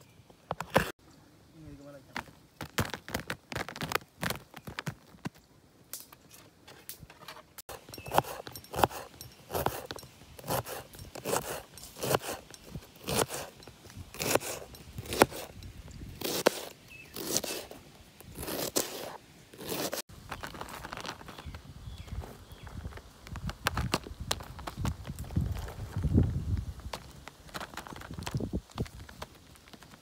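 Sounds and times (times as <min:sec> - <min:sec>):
knife slicing through cabbage: 0:07.7 - 0:15.6, 0:16.2 - 0:20.0.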